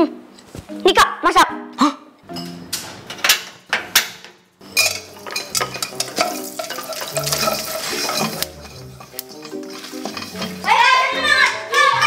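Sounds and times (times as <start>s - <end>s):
spatula stirring kernels: 4.6s - 11.0s
popcorn kernels sizzling in pan: 4.6s - 11.2s.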